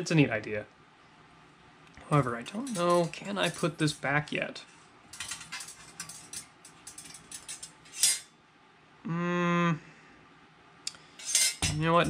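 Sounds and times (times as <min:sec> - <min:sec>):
small metal parts clicking: 0:02.3 - 0:04.0, 0:05.1 - 0:08.2
man humming hmm: 0:09.0 - 0:10.0.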